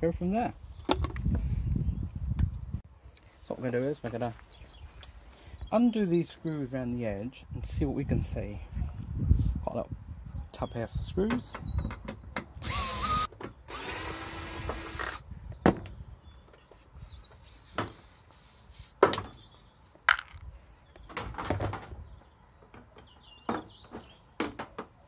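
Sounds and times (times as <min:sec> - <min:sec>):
cordless drill spinning out screw: 0:12.6 - 0:15.2.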